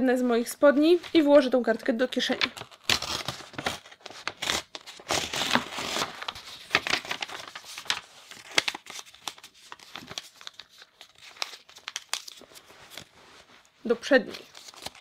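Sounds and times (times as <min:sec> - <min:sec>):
paper crinkling: 0:02.2 - 0:15.0
paper page tearing: 0:02.4 - 0:13.2, 0:14.3 - 0:15.0.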